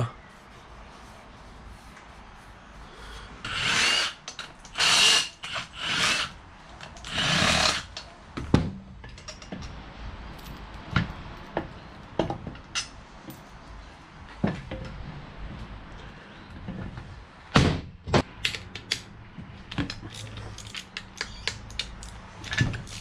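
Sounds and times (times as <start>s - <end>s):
tools and parts clicking and knocking: 3.5s - 8.1s, 8.9s - 13.5s, 18.1s - 23.0s.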